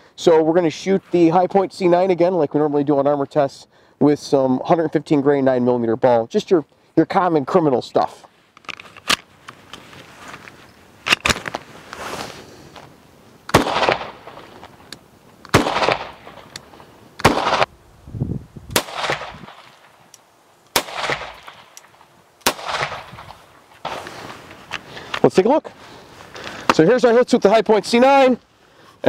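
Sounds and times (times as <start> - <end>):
pistol shots with echo: 13.5 - 14.4, 15.5 - 16.5, 17.2 - 17.7, 18.7 - 19.8, 20.7 - 21.8, 22.4 - 24.0.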